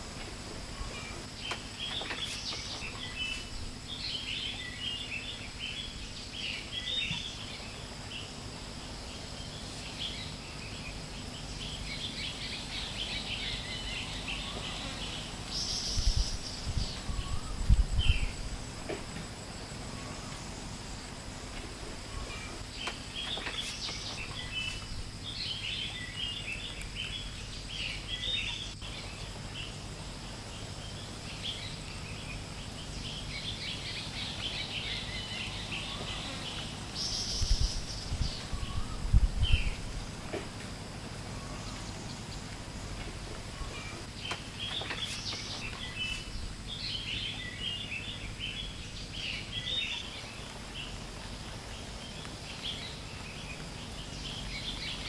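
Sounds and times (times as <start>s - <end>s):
birds chirping: 0.0s - 55.0s
high insect drone: 0.0s - 55.0s.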